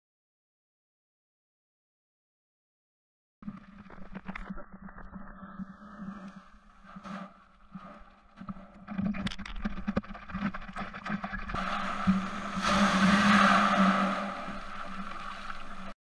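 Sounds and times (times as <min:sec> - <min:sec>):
water splashing against a board: 0:06.8 - 0:16.0
breaking surf rushing: 0:11.6 - 0:16.0.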